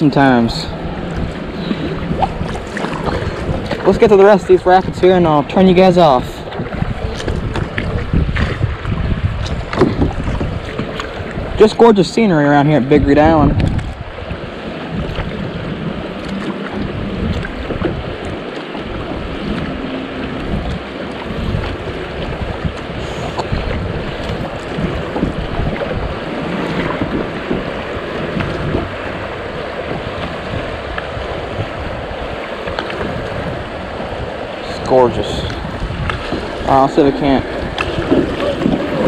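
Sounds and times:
wind buffeting microphone: 0:00.0 - 0:39.0
creek water running over riffles: 0:10.4 - 0:39.0.

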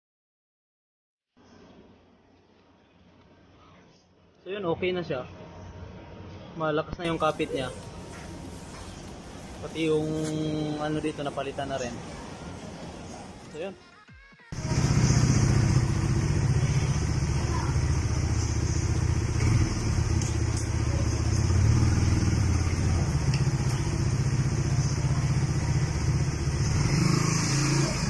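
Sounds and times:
motorcycle engine idling: 0:14.6 - 0:28.0.

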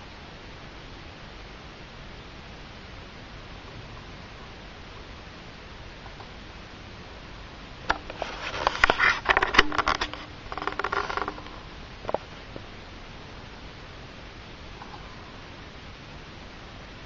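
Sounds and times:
steady hiss: 0:00.0 - 0:17.0
handling clicks and rustling: 0:07.9 - 0:12.7.

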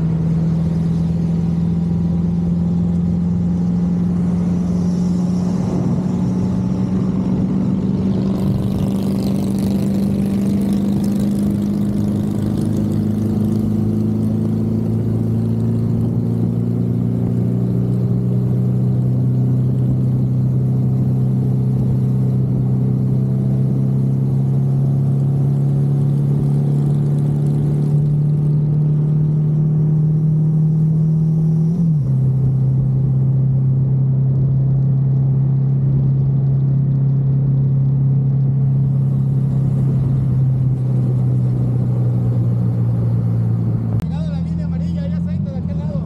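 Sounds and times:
motorcycle engine cruising: 0:00.0 - 0:46.0.

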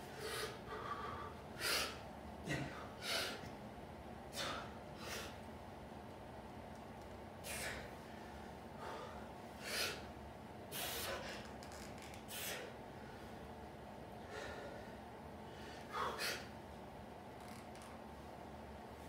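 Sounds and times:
man breathing hard: 0:00.0 - 0:03.5, 0:04.3 - 0:05.5, 0:07.4 - 0:10.1, 0:10.7 - 0:11.5, 0:12.3 - 0:13.5, 0:14.2 - 0:16.6.

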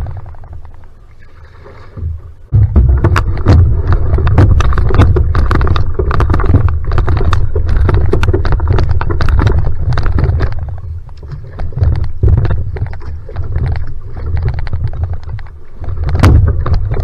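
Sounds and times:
paddle strokes splashing: 0:00.0 - 0:17.0
loud steady low rumble: 0:02.1 - 0:11.0.

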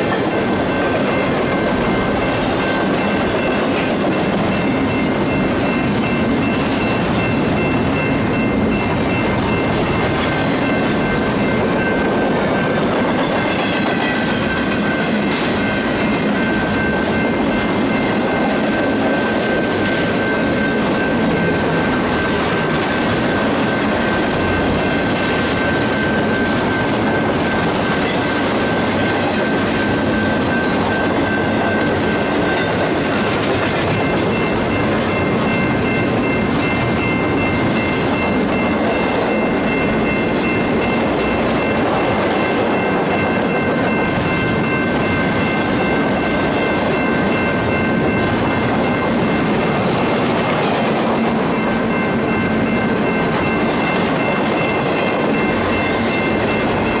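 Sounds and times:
high ringing tone: 0:00.0 - 0:57.0
train wheels rolling on rails: 0:00.0 - 0:57.0.

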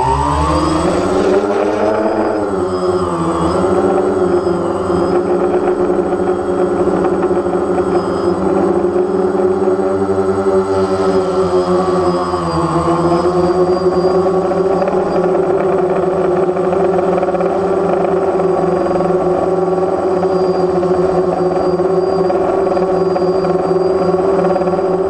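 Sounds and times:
drone propellers humming: 0:00.0 - 0:25.0.

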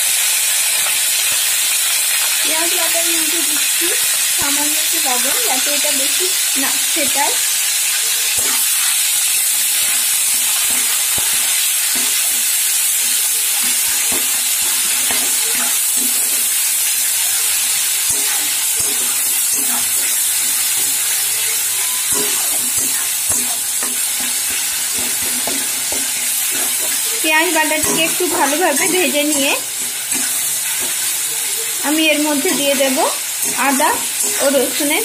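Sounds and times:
onion paste sizzling in oil: 0:00.0 - 0:35.0
metal spatula scraping and tapping pan: 0:07.9 - 0:35.0.

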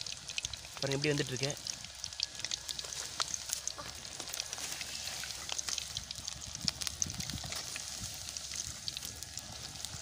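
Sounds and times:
deep-frying sizzle with pops: 0:00.0 - 0:10.0.

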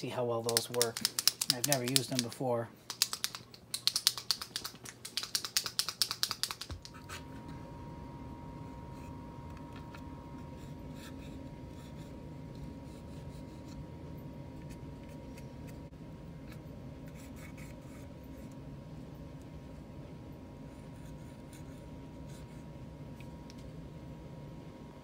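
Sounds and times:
steady low hum: 0:00.0 - 0:25.0
paint marker ball rattling: 0:00.4 - 0:02.3, 0:02.9 - 0:06.9.

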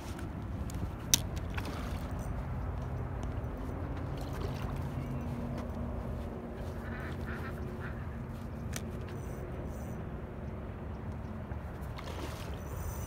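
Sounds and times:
ducks quacking: 0:06.6 - 0:08.6.

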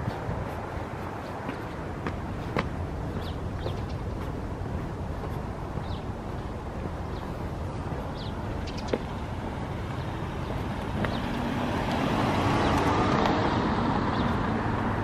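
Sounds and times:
low street rumble: 0:00.0 - 0:15.0
car driving past: 0:09.7 - 0:15.0.

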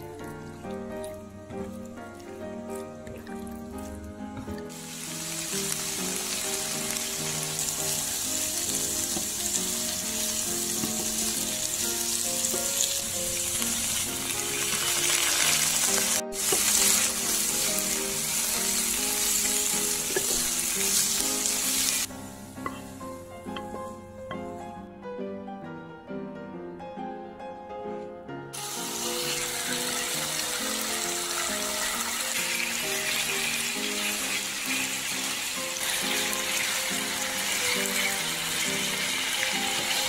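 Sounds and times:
food sizzling in oil: 0:04.7 - 0:23.0, 0:28.6 - 0:40.0.

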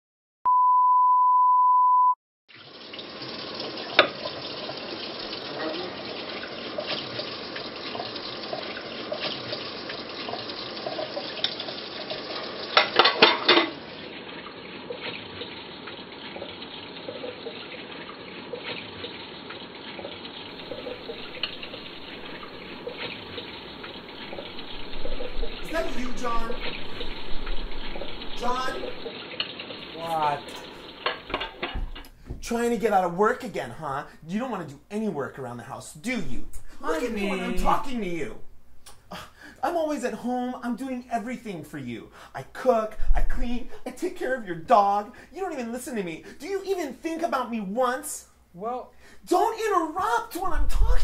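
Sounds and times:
pots and dishes clinking: 0:12.7 - 0:13.8, 0:30.6 - 0:32.2
tap running into sink: 0:30.9 - 0:32.6.

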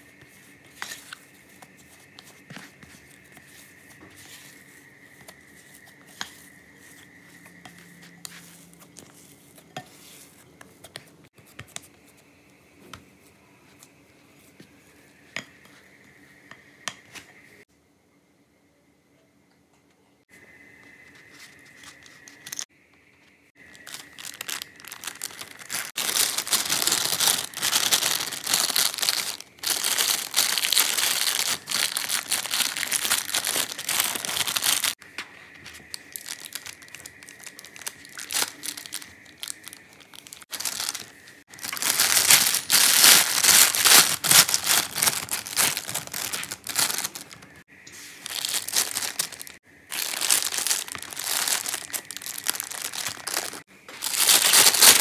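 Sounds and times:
plastic piping bag crinkling: 0:23.6 - 0:35.0, 0:35.9 - 0:55.0.

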